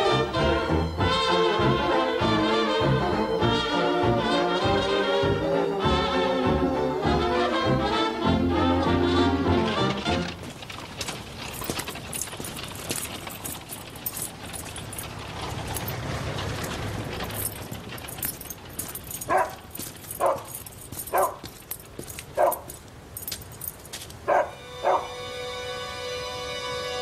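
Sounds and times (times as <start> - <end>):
clicking and rustling: 9.6 - 24.5
dog barking: 19.2 - 21.5, 22.4 - 22.8, 24.3 - 25.2.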